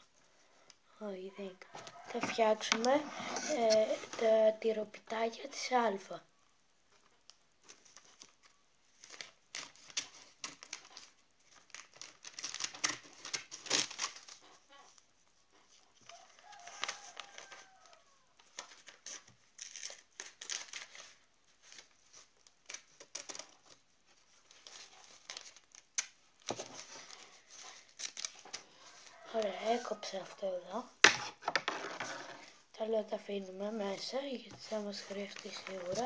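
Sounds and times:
paper crinkling and rustling: 0:06.9 - 0:30.0, 0:33.6 - 0:36.0.

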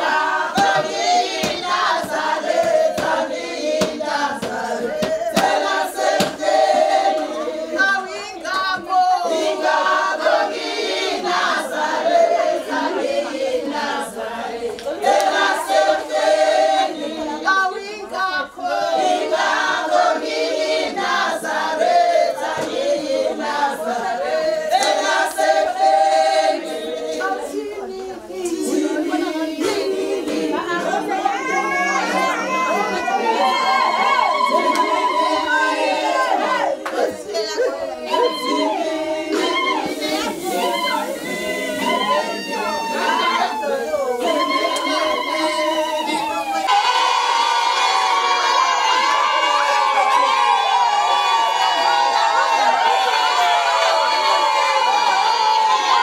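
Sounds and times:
choir singing: 0:00.0 - 0:56.0
sharp knocks or claps: 0:00.6 - 0:03.2, 0:06.2 - 0:06.4.

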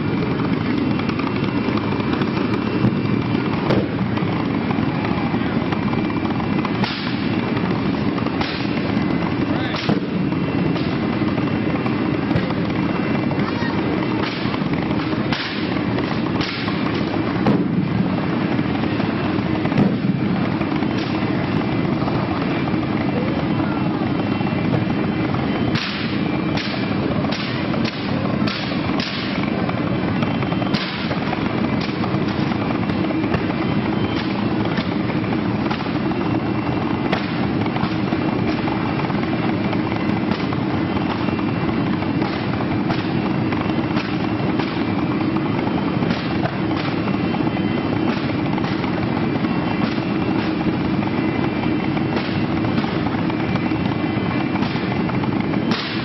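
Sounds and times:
sharp pops and crackles: 0:00.0 - 0:23.3, 0:24.1 - 0:56.0
flame roaring: 0:00.0 - 0:56.0.

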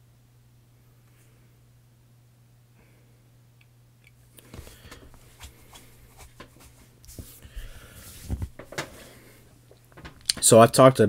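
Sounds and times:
steady low hum: 0:00.0 - 0:11.0
clothing rustling: 0:04.4 - 0:10.3.

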